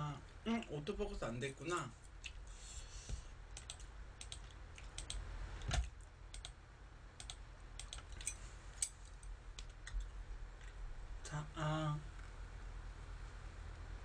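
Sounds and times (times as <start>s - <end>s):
typing on computer keyboard: 3.6s - 6.6s, 7.2s - 8.3s.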